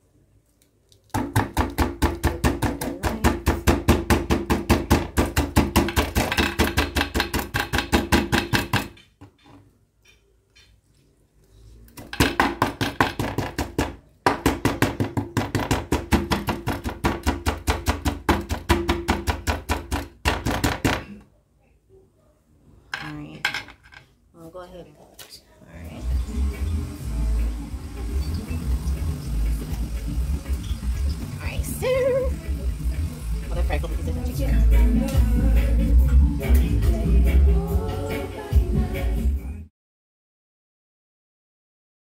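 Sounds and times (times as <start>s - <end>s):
knife chopping on glass board: 12.0s - 21.2s.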